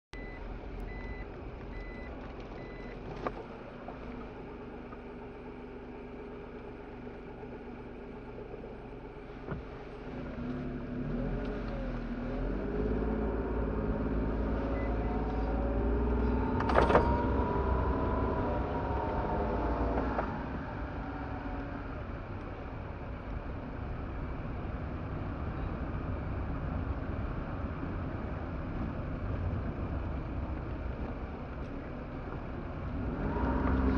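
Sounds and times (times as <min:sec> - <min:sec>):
short electronic beeps: 0:00.1 - 0:02.9
car engine and road noise: 0:00.1 - 0:33.9.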